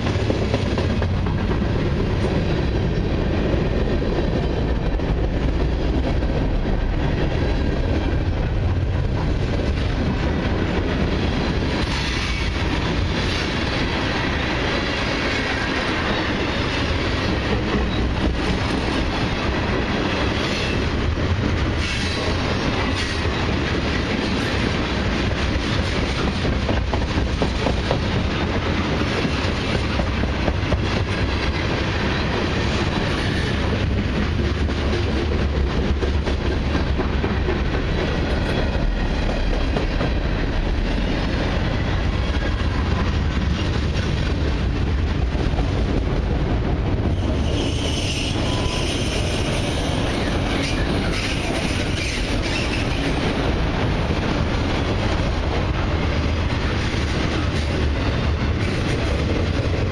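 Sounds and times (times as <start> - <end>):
train wheels rumbling on rails: 0.0 - 59.9
wheel squeal: 47.2 - 49.7.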